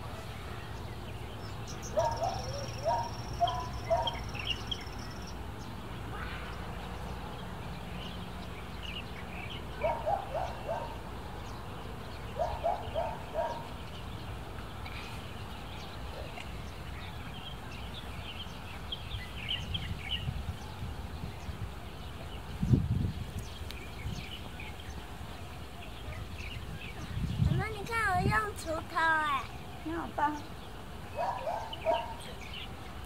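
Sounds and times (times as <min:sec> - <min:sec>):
birds chirping: 0:00.0 - 0:33.0.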